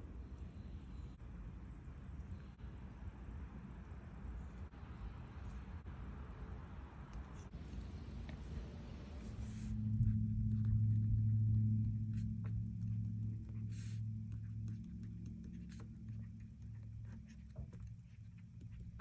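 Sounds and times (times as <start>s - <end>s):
low steady hum: 0.0s - 19.0s
stylus scratching on tablet screen: 9.2s - 19.0s.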